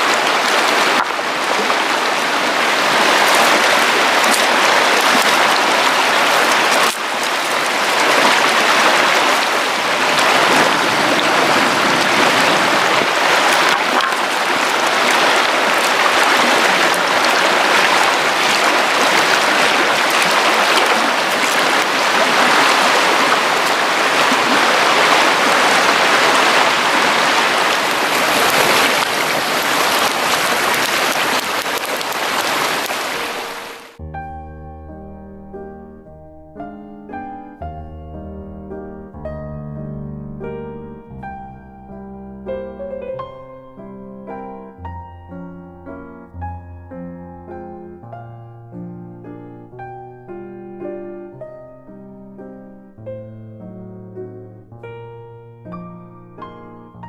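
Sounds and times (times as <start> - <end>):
stream rushing over rocks: 0.0 - 34.0.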